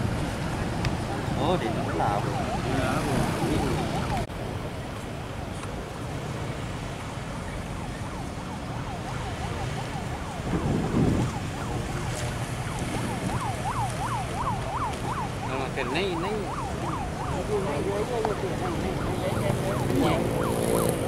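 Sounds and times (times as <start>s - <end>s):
moving vehicle rumble: 0.0s - 21.0s
siren yelping: 1.1s - 4.3s, 8.0s - 21.0s.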